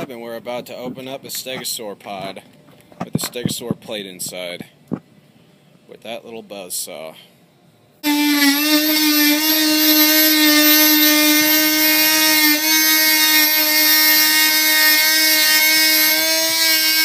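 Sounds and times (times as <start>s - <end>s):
oscillating multi-tool buzzing: 8.0s - 17.0s.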